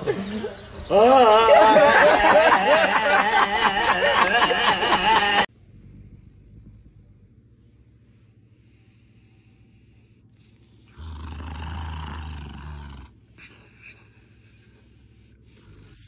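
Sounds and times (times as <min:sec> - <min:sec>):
dog growling low: 0:05.5 - 0:07.7, 0:10.4 - 0:16.0.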